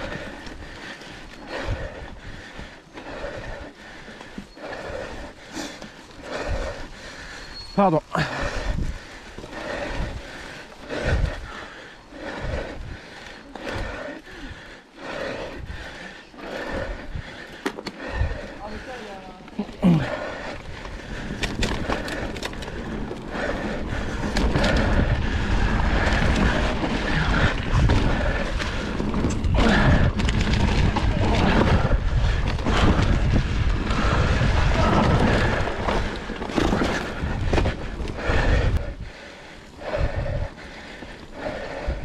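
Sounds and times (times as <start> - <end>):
wind rumble on microphone: 8.3 - 11.6, 20.1 - 40.7, 41.3 - 42.0
bike knocking and rattling: 15.0 - 18.9, 19.8 - 42.0.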